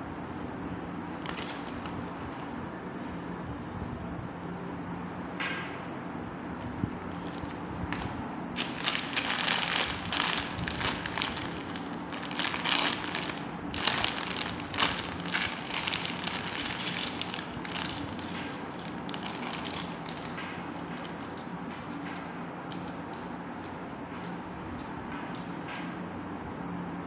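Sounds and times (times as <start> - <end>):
plastic bags crinkling: 1.2 - 2.5, 7.1 - 22.1.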